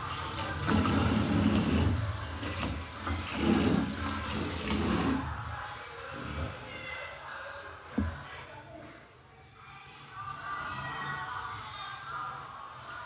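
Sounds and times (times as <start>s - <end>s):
water sloshing in a sink: 0.0s - 5.4s.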